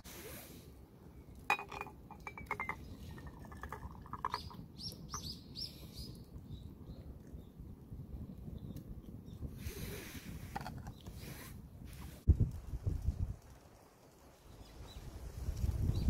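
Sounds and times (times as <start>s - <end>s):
liquid glugging into a mug: 1.5s - 4.6s.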